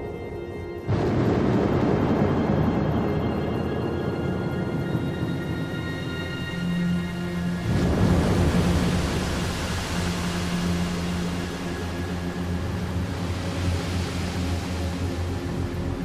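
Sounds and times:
wind and water rushing: 0.9s - 16.0s.

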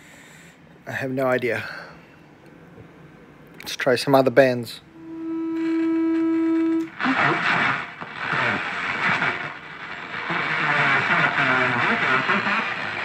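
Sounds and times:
radio test tone: 4.9s - 13.0s
radio hiss: 5.6s - 13.0s
distorted radio station: 6.8s - 13.0s.

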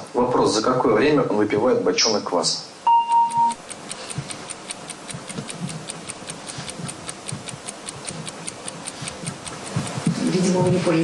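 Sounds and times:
steady beep: 2.9s - 3.6s
fast clock ticking: 3.2s - 11.0s.

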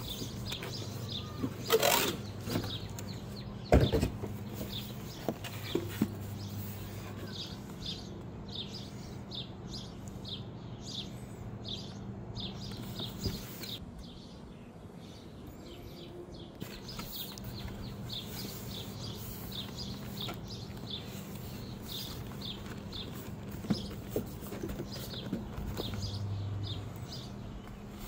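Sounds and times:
small bird chirping: 15.0s - 28.0s.

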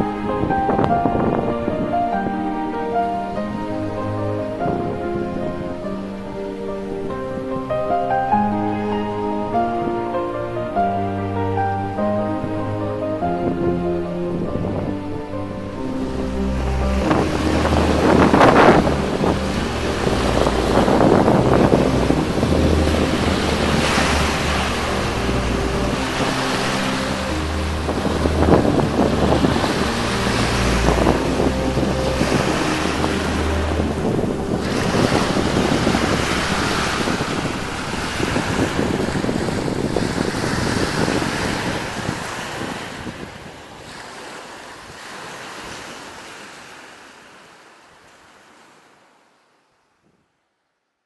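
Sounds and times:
wind buffeting microphone: 0.0s - 46.8s
surf breaking on sandy shore: 15.7s - 49.0s.

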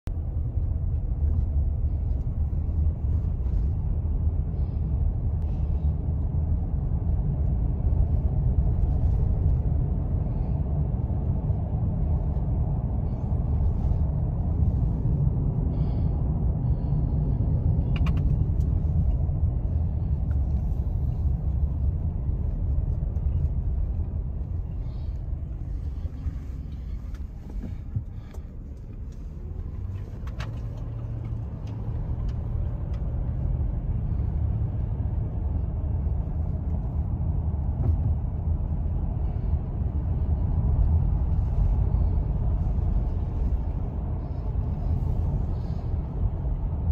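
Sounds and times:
car driving rumble from cabin: 0.0s - 46.9s.

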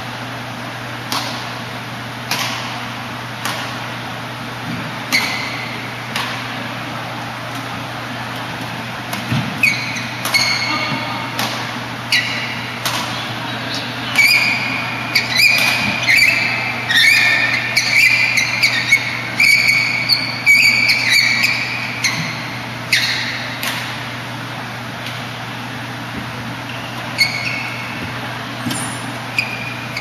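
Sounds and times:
shoes squeaking on court: 4.7s - 6.5s, 9.2s - 24.1s, 25.2s - 30.0s.

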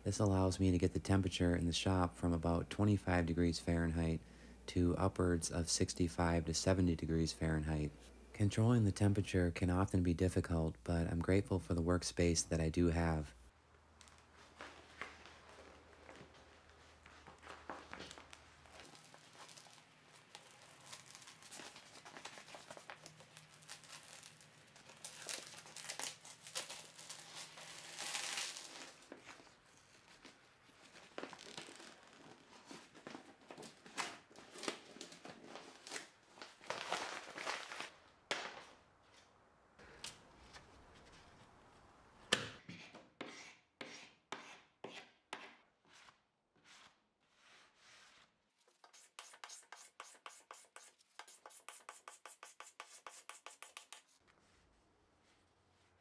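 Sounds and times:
plastic sheet crumpling and tearing: 14.0s - 38.0s.

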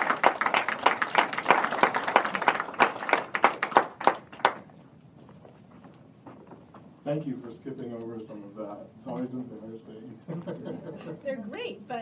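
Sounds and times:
audience applauding: 0.0s - 4.7s.

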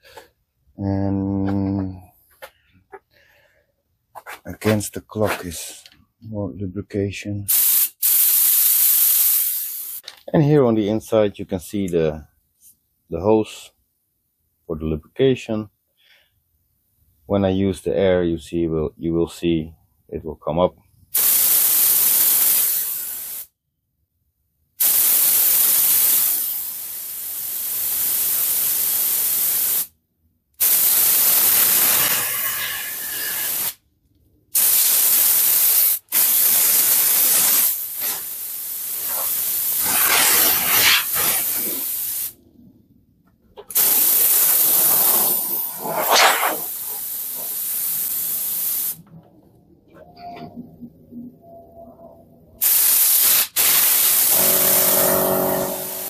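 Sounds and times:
compressed air hissing from air tool: 7.5s - 10.0s, 21.2s - 23.5s, 24.8s - 29.9s, 30.6s - 33.8s, 34.6s - 42.4s, 43.7s - 49.0s, 52.6s - 56.0s.

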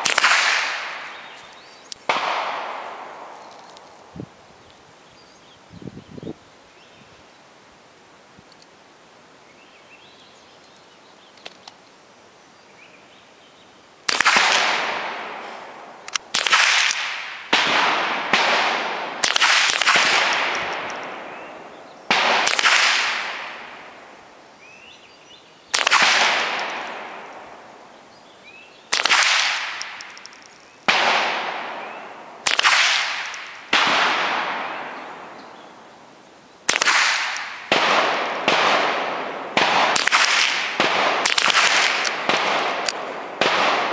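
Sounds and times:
rifle shots echoing: 0.0s - 3.8s, 14.0s - 24.3s, 25.7s - 27.8s, 28.9s - 35.7s, 36.7s - 43.9s.

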